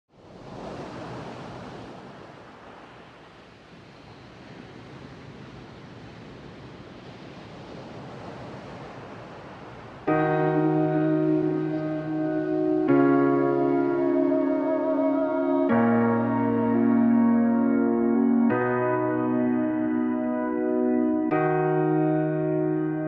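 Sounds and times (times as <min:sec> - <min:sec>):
music with sustained chords: 0:10.1 - 0:23.0.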